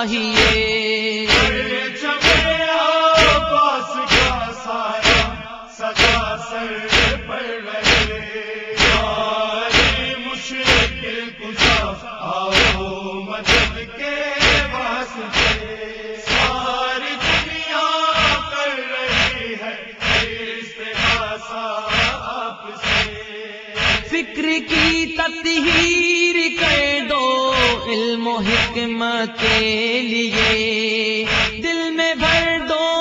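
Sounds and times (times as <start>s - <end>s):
chorus of voices chanting: 0.0s - 32.7s
hands beating on chests: 0.4s - 0.7s, 1.3s - 2.6s, 3.2s - 3.5s, 4.1s - 16.6s, 17.2s - 17.6s, 18.2s - 18.5s, 19.1s - 20.4s, 21.9s - 23.2s, 23.8s - 24.1s, 24.7s - 25.0s, 31.3s - 31.6s.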